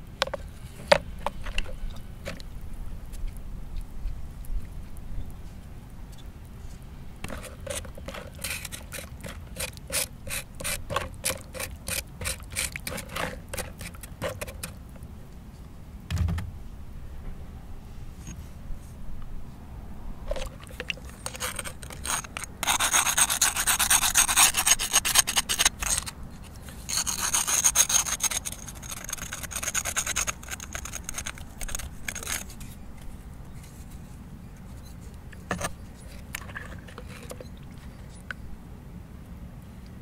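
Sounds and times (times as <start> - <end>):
stone scrubbing bone in water: 7.2 - 14.8, 20.3 - 32.8, 34.8 - 38.3.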